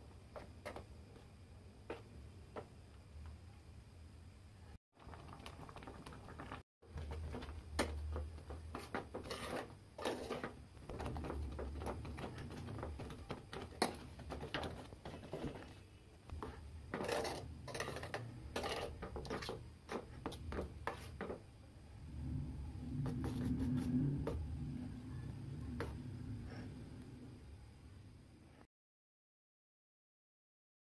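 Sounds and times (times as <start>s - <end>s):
spoon stirring in steel bowl: 5.4s - 21.4s
low steady rumble: 21.8s - 28.1s.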